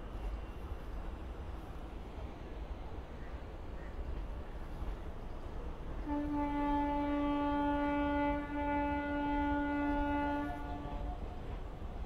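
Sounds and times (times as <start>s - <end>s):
locomotive air horn blast: 6.0s - 11.2s.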